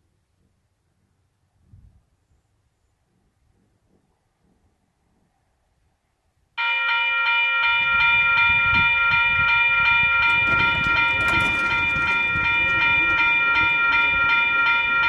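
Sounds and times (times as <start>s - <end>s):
railroad crossing bell ringing: 6.6s - 15.0s.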